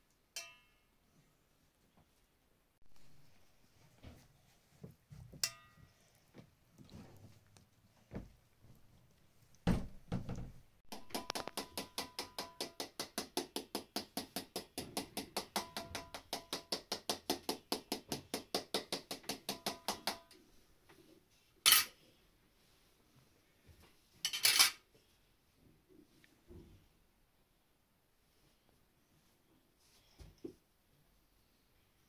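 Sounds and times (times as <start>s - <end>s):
dull thump: 9.6s - 10.5s
utensil knocking against dish: 10.9s - 20.3s.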